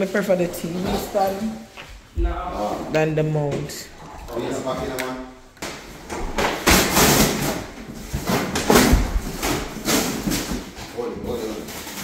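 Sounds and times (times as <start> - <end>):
rustling and scraping: 0.0 - 3.0, 5.7 - 12.0.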